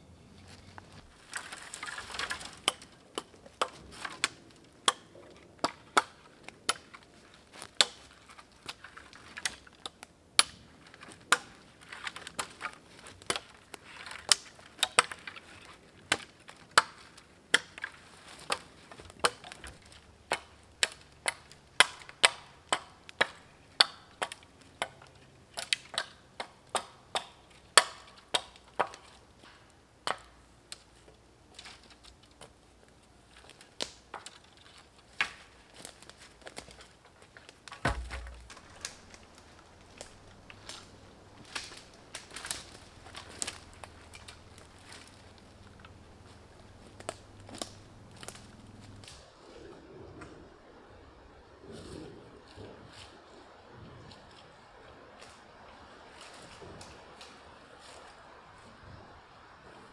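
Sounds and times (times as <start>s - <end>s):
hatchet chopping wood: 2.4s - 6.9s, 7.6s - 8.1s, 16.1s - 25.0s, 25.6s - 29.0s, 37.7s - 39.2s.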